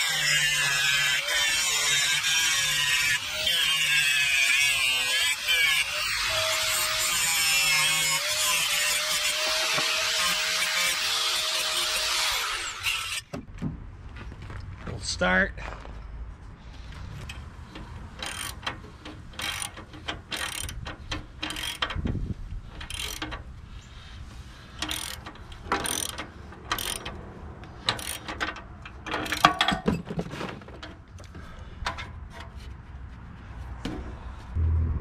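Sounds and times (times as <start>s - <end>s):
ratchet wrench clicking: 17.2s - 22.1s, 22.8s - 23.4s, 24.8s - 27.2s, 27.8s - 29.5s.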